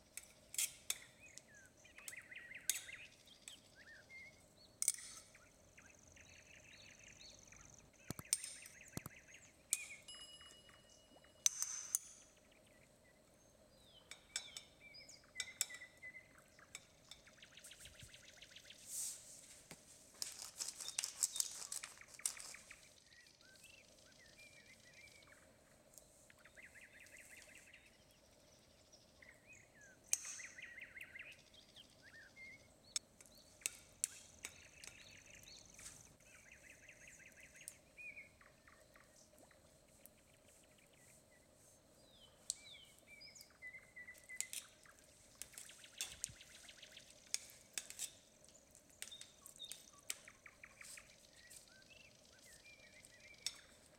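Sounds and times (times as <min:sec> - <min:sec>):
faint birdsong: 0:00.0 - 0:53.9
metal spoon clinking on steel ring: 0:09.7 - 0:12.0.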